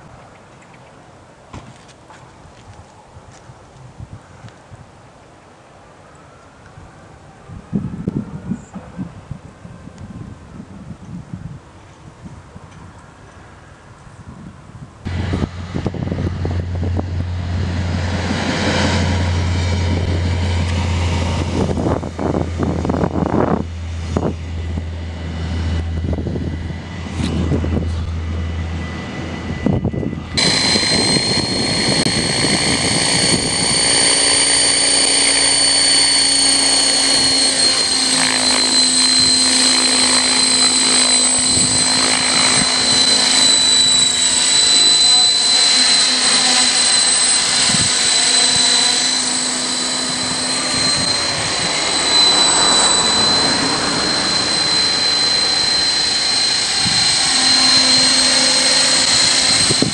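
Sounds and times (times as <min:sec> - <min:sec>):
rc helicopter high whine: 0:15.0 - 0:59.9
rotor hum: 0:15.1 - 0:59.9.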